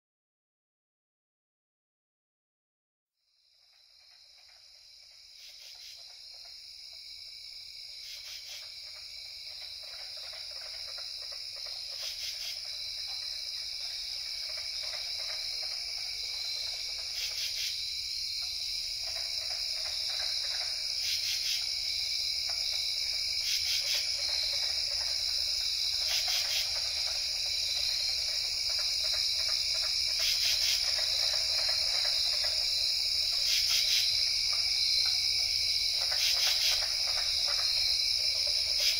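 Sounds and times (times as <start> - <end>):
insects trilling: 3.3 - 38.9.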